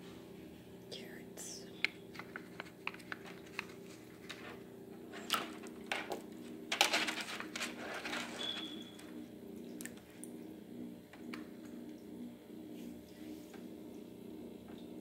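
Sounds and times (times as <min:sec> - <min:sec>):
steady low hum: 0:00.0 - 0:15.0
paper rustling: 0:02.1 - 0:04.6, 0:05.2 - 0:08.8.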